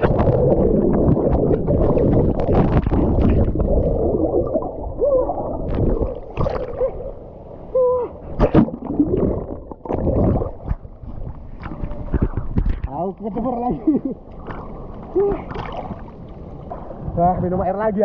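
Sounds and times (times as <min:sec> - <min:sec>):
warbling bubbles: 0:00.0 - 0:07.2, 0:08.4 - 0:12.9
water rushing and splashing: 0:00.0 - 0:13.1, 0:14.4 - 0:17.3
underwater gurgling: 0:00.0 - 0:17.2.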